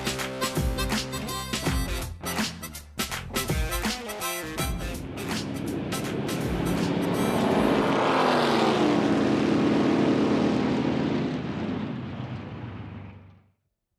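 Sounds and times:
race car engine passing: 0:04.7 - 0:13.4.

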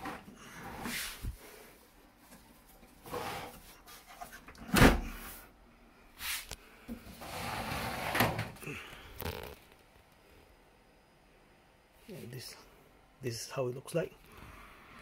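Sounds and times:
metal case sliding scrape: 0:03.0 - 0:04.3, 0:07.1 - 0:08.6.

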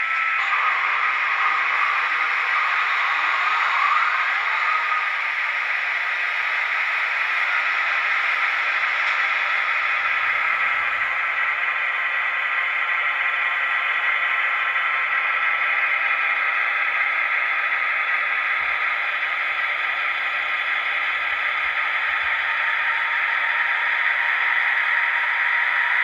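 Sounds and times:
model train wheels on track: 0:00.0 - 0:26.0.

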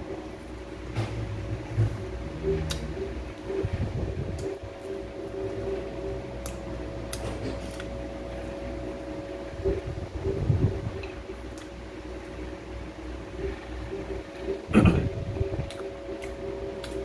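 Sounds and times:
mechanical hum: 0:00.0 - 0:17.0
man chewing: 0:04.3 - 0:08.6, 0:13.3 - 0:17.0.

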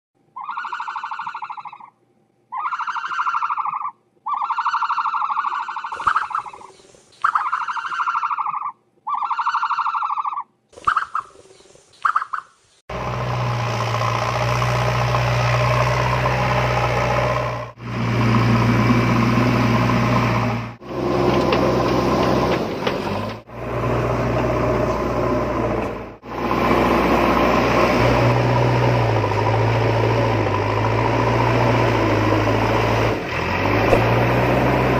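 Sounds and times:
engine running with deep hum: 0:12.9 - 0:34.9.

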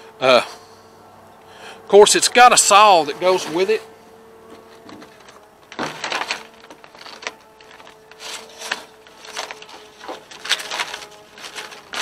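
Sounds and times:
paper rustling: 0:04.5 - 0:12.0.

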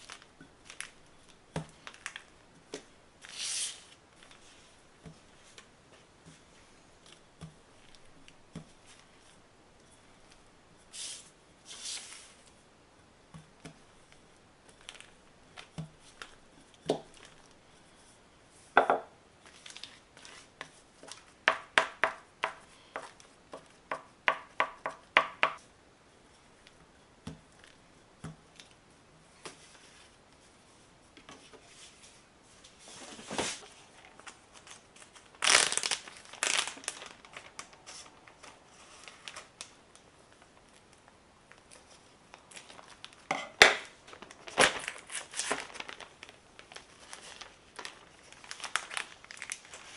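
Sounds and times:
plastic bag rustling: 0:00.0 - 0:02.3, 0:14.0 - 0:17.9, 0:19.4 - 0:21.4, 0:32.8 - 0:39.7, 0:41.5 - 0:49.9.

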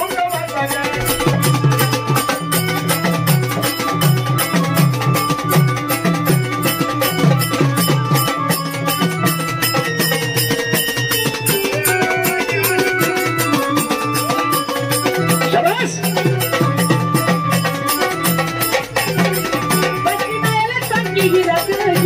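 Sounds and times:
drum beating quick rhythm: 0:00.0 - 0:22.0
held keyboard notes: 0:00.0 - 0:22.0.

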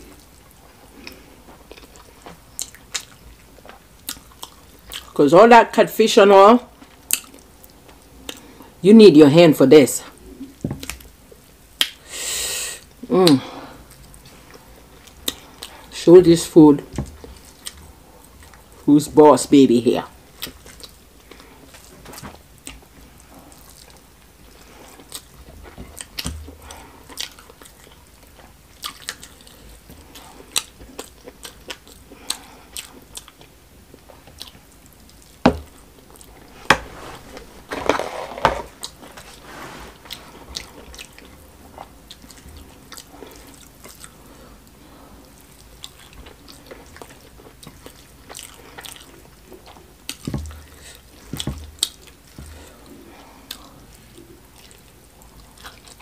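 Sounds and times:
wet chewing and mouth smacks: 0:00.1 - 0:05.2, 0:06.8 - 0:08.5, 0:13.2 - 0:15.9, 0:17.0 - 0:18.7, 0:20.4 - 0:21.9, 0:22.6 - 0:35.4, 0:40.1 - 0:44.8, 0:45.4 - 0:56.0.

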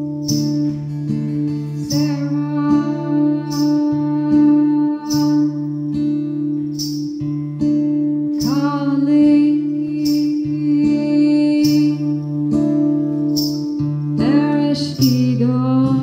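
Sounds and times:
acoustic guitar strummed slowly: 0:00.0 - 0:16.0
woman singing long notes: 0:01.8 - 0:05.8, 0:08.4 - 0:12.3.

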